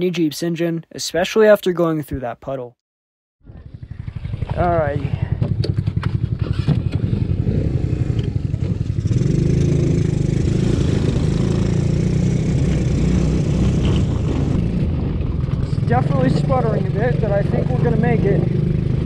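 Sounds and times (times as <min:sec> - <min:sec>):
small engine running unevenly: 0:03.5 - 0:19.0.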